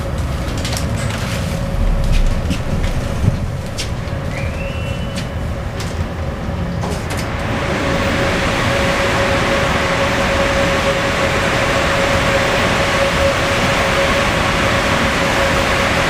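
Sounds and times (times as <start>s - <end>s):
steady hum: 0.9s - 6.7s.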